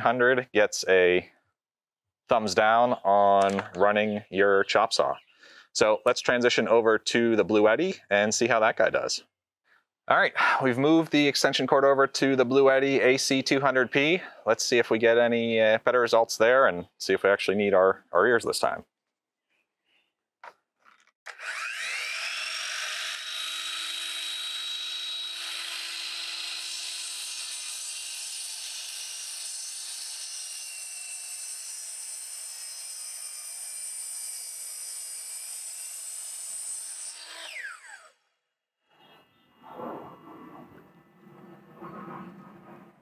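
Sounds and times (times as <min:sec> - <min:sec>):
miter saw motor whine: 0:21.3 - 0:28.5, 0:37.1 - 0:38.1
saw blade cutting timber: 0:21.3 - 0:38.2.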